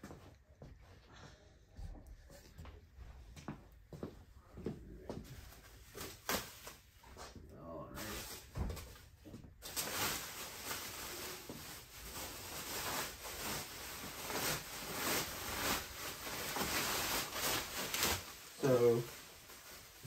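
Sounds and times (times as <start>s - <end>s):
plastic film and bubble wrap crinkling: 5.2s - 20.0s.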